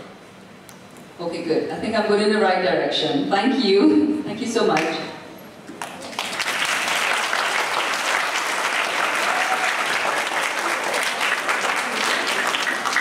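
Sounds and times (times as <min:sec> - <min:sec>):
children applauding: 0:05.8 - 0:13.0.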